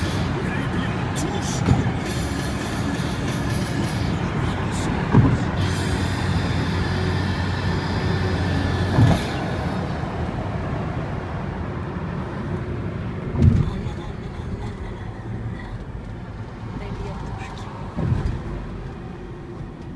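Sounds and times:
car road noise: 0.0 - 19.9
short thumps: 5.0 - 6.2, 17.9 - 18.8.

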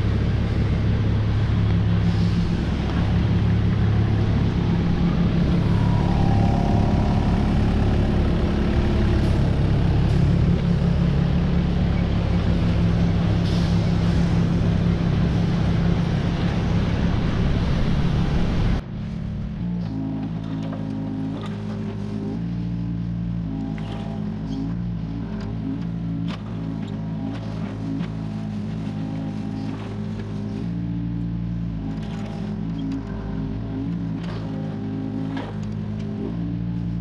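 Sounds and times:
excavator diesel engine running: 0.0 - 37.0
hydraulic whine: 0.0 - 37.0.

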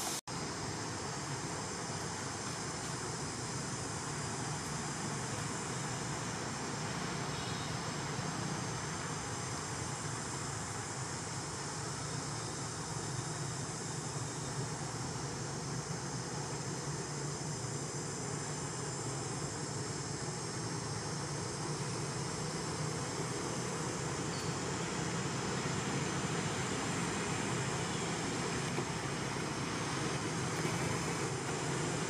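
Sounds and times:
high insect drone: 0.3 - 32.0.

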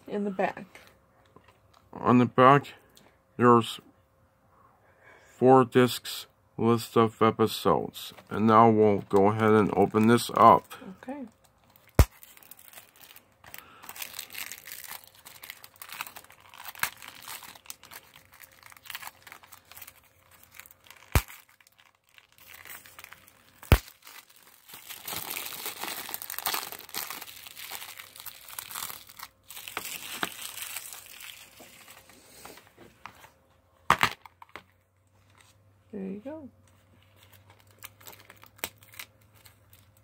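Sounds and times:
plastic shrink-wrap crinkling: 9.0 - 32.3, 37.0 - 40.0.

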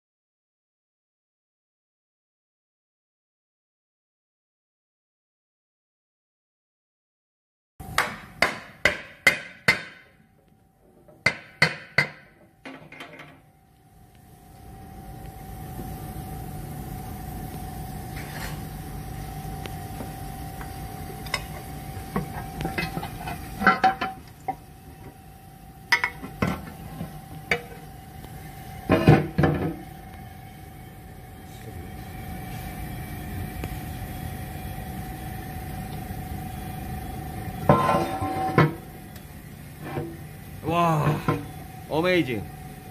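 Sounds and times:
workshop hum: 7.8 - 42.9
hammer striking metal: 7.9 - 10.2, 11.2 - 12.4
metal clunks and knocks: 11.1 - 13.4
high whine: 12.2 - 42.9.

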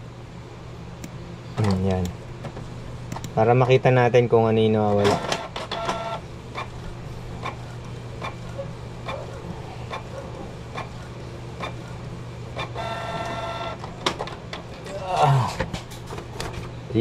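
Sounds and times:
print head carriage clicks: 4.9 - 6.7
printer motor hum: 4.9 - 14.6
high motor whine: 5.0 - 14.0.

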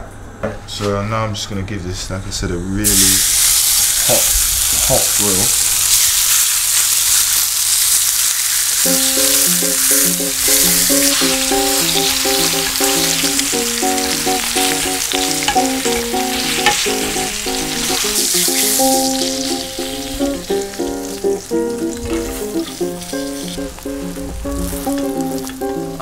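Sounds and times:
meat sizzling on a griddle pan: 2.8 - 25.7
light plucked background music: 8.8 - 26.0.

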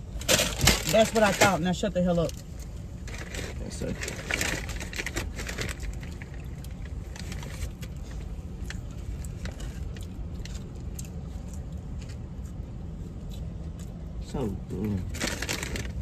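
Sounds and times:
low hum inside car: 0.0 - 16.0
paper wrapper crinkling: 0.1 - 10.6, 15.0 - 16.0.

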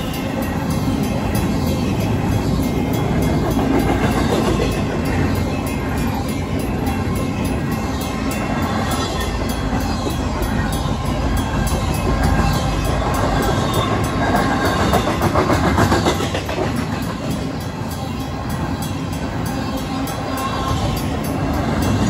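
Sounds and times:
crossing bell ringing: 0.0 - 22.0
train wheels clattering over rail joints: 11.8 - 18.1.

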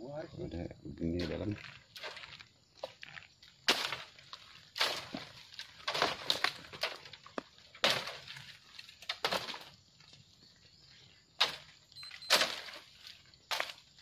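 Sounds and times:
footsteps crunching on dry leaves: 1.1 - 9.0
leaves and stems rustling: 1.1 - 14.0.

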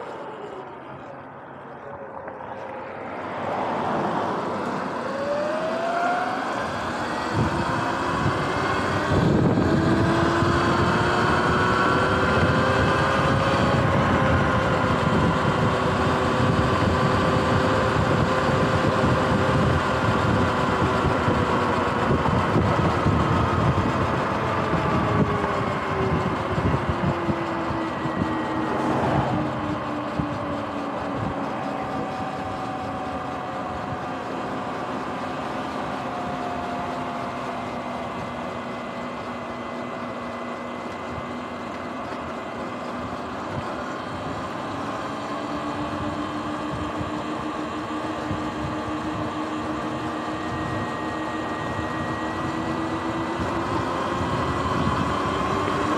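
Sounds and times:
electric motor whining: 3.5 - 55.9
wind rushing over microphone: 6.7 - 34.0, 45.2 - 55.9.

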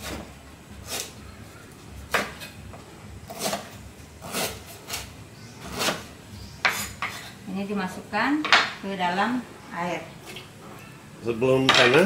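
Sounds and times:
knife chopping on a cutting board: 2.1 - 2.5, 3.3 - 7.2.

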